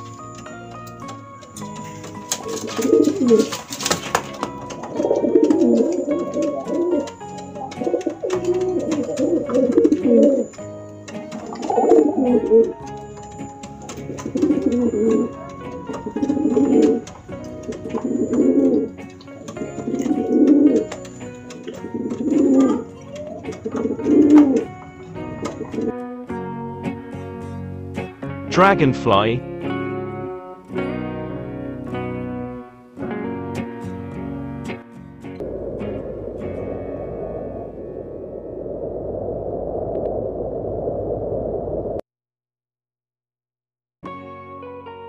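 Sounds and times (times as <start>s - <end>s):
wings fluttering: 0.0s - 25.9s
light background music: 0.0s - 35.4s
pigeons cooing: 1.6s - 25.9s.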